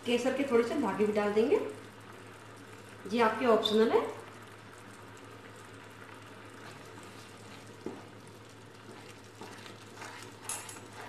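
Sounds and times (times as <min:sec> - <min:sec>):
milk bubbling in a pan: 0:00.0 - 0:11.0
wooden spatula stirring: 0:06.6 - 0:11.0.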